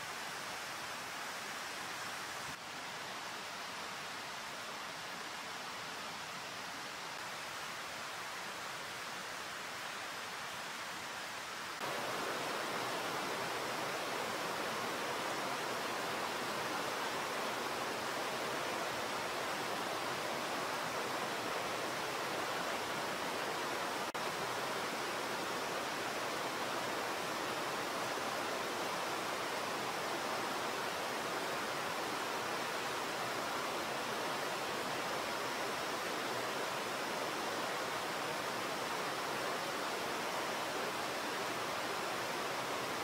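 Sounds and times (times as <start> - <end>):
steady rushing hiss: 0.0 - 43.0.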